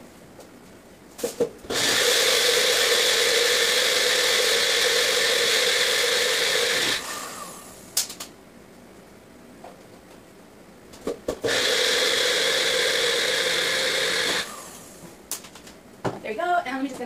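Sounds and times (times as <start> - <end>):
blender motor grinding: 1.7 - 7.8, 11.4 - 15.0
blender clicks: 11.5 - 14.6.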